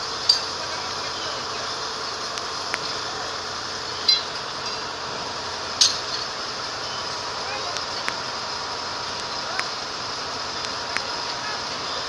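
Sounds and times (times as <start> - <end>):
steady hiss: 0.0 - 12.0
sharp metallic clinks: 4.0 - 4.8.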